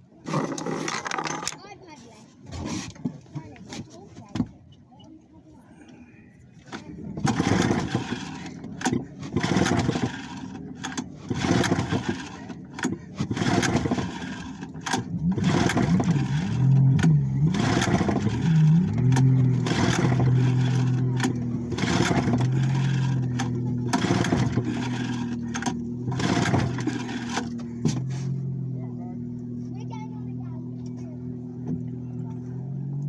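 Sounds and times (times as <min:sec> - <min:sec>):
outboard engine cranking: 0:00.0 - 0:33.0.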